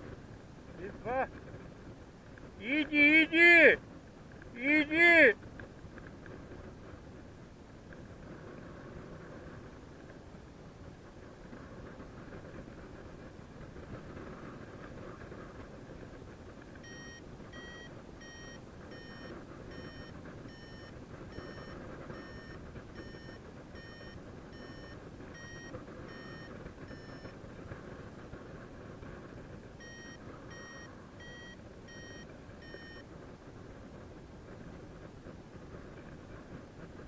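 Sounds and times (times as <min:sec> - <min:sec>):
wind rush on microphone: 0:00.0 - 0:37.0
short high variometer beeps: 0:16.8 - 0:27.4, 0:29.8 - 0:33.1.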